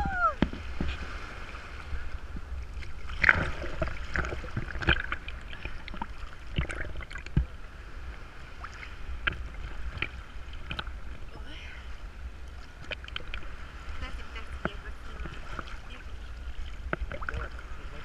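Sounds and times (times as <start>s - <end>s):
sea water sloshing and splashing: 0.0s - 18.0s
steady low rumble: 0.0s - 18.0s
water drops and splashes: 2.4s - 7.6s, 8.5s - 11.3s, 12.5s - 17.6s.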